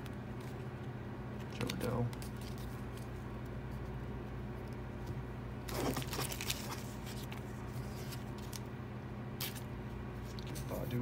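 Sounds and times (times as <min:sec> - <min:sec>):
steady low hum: 0:00.0 - 0:11.0
cards rustling and clicking: 0:01.4 - 0:03.9, 0:04.6 - 0:08.7.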